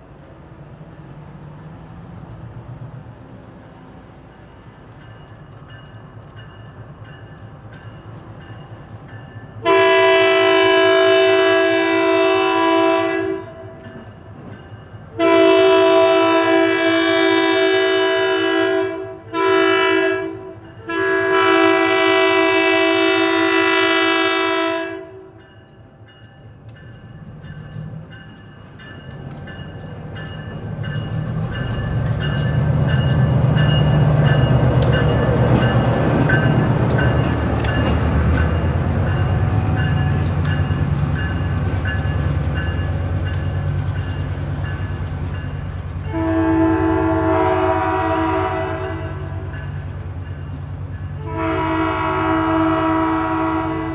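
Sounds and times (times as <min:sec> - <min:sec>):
diesel locomotive engine: 0:00.0 - 0:53.9
locomotive horn: 0:09.6 - 0:14.0, 0:15.1 - 0:25.4, 0:46.1 - 0:49.6, 0:51.2 - 0:53.9
wheels clicking on rails: 0:25.6 - 0:47.0.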